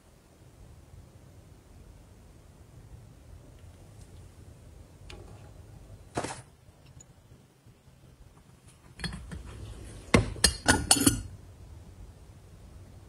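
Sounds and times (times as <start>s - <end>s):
china teacups clinking: 10.2s - 11.3s.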